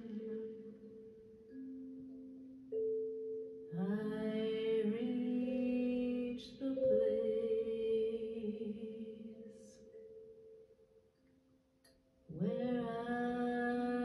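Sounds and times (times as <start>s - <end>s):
wordless singing voice: 0.0s - 1.8s, 3.7s - 10.2s, 12.3s - 14.0s.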